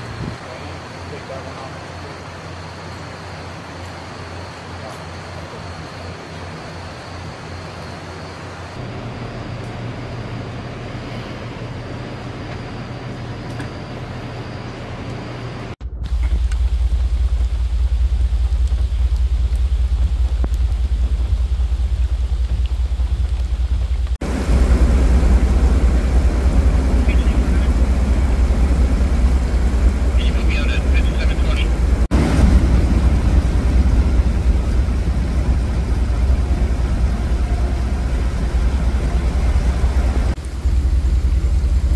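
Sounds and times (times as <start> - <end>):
rain hissing: 0.0 - 12.4, 15.8 - 41.9
vehicle driving through floodwater: 16.2 - 41.9.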